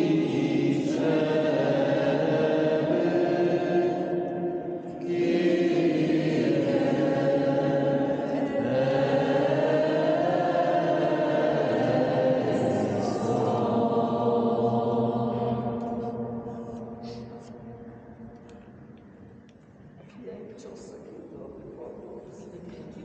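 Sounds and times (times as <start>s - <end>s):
group singing a slow hymn: 0.0s - 19.1s.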